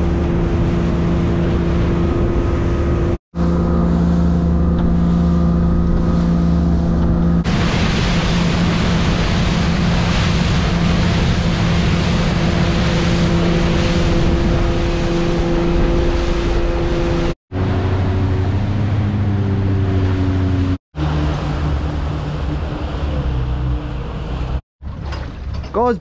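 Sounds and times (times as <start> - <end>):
motorboat engine running: 0.0 - 25.9
rushing water and wind: 0.0 - 26.0
hiss of churning wake: 7.4 - 18.5.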